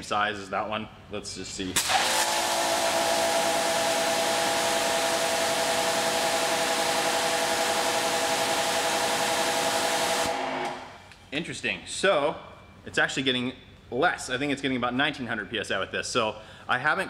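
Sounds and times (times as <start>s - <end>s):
motor whine: 1.8s - 11.0s
pressure washer spraying: 1.8s - 11.0s.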